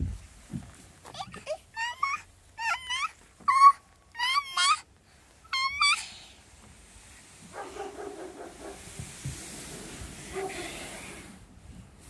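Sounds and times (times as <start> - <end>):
toddler voice sounds: 1.0 - 4.9, 5.5 - 6.4
toddler squealing: 1.1 - 4.9, 5.5 - 6.2.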